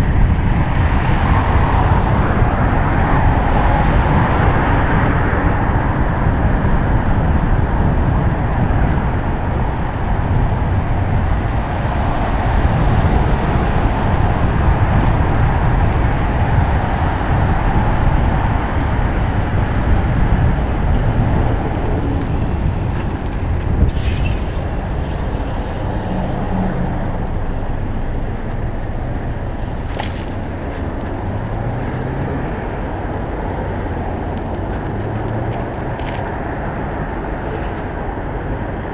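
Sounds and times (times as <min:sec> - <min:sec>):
road and traffic noise: 0:00.0 - 0:38.9
wind rushing over microphone: 0:00.0 - 0:38.9.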